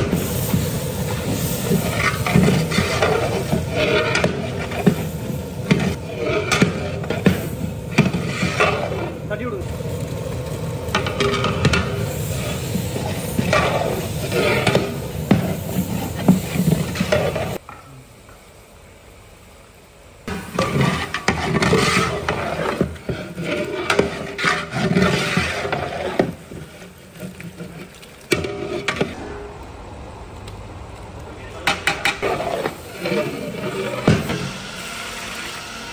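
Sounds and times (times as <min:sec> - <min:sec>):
metal ladle scraping pot: 0:00.0 - 0:09.3, 0:10.9 - 0:17.6, 0:20.3 - 0:29.3, 0:31.6 - 0:34.6
vegetables sizzling in oil: 0:00.0 - 0:29.3, 0:32.1 - 0:35.9.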